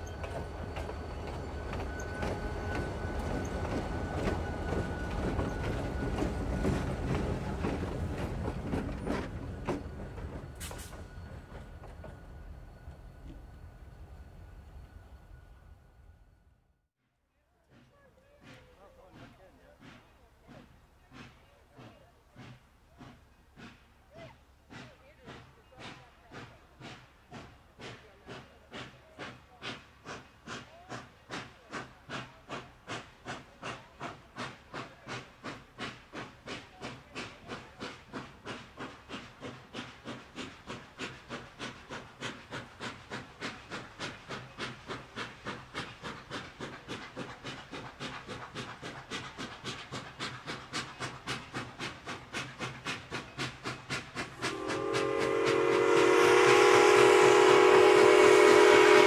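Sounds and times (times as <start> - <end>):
steam locomotive exhaust chuffs: 0.0 - 15.5, 17.6 - 59.0
steam whistle blowing: 54.4 - 59.0.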